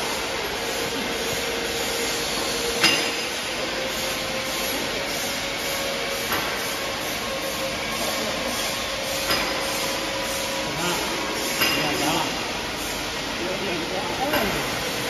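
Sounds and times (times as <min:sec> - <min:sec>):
welding machine running: 0:00.0 - 0:15.0.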